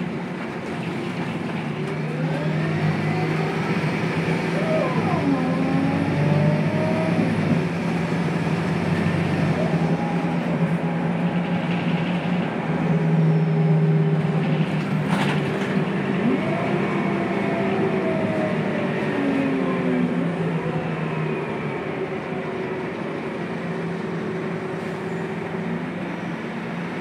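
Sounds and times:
bus engine droning: 0.0s - 27.0s.

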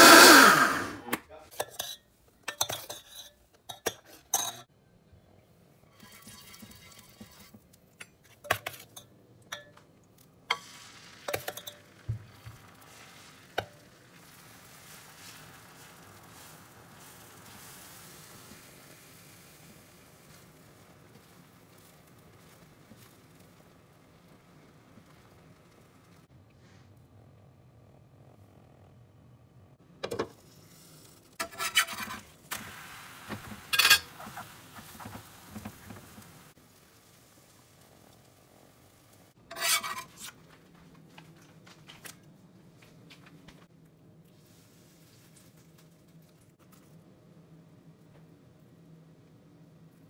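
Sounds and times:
batter sizzling on griddle: 5.9s - 8.2s, 8.9s - 26.3s, 30.4s - 40.5s
spatula scraping griddle: 5.9s - 9.0s, 30.4s - 32.4s, 33.3s - 36.6s, 39.3s - 40.6s.

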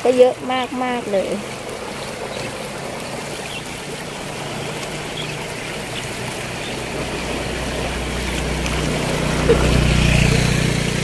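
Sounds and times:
floodwater rushing: 0.0s - 11.0s.

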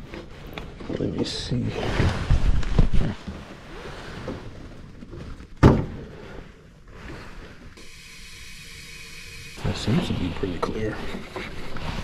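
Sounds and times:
faint steady hum: 6.5s - 11.8s.

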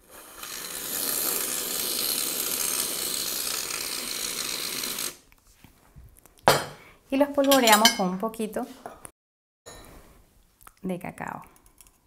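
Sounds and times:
aerosol cream can hissing: 0.0s - 5.2s.

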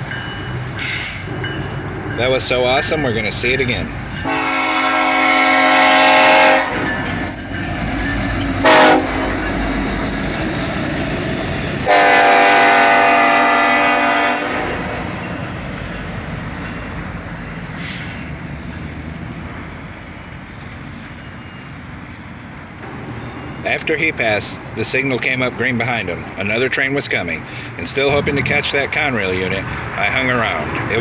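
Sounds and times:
train air horn blasts: 4.2s - 6.9s, 8.6s - 9.5s, 11.8s - 15.1s
train wheels clickety-clack: 6.6s - 11.9s.

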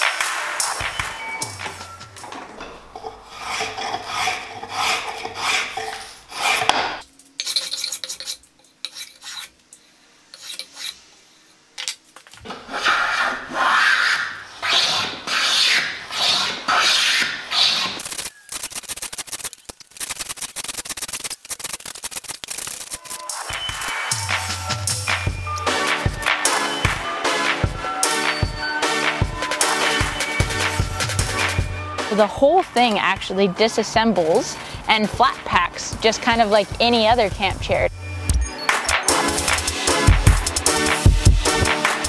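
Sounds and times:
hand plane shaving wood: 3.0s - 6.8s, 12.5s - 18.0s.

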